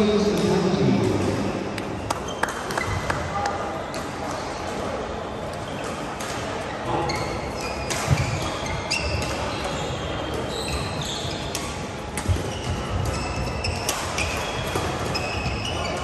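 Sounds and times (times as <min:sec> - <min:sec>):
shoes squeaking on floor: 0:01.5 - 0:03.2, 0:05.6 - 0:16.0
racket hitting shuttlecock: 0:07.2 - 0:16.0.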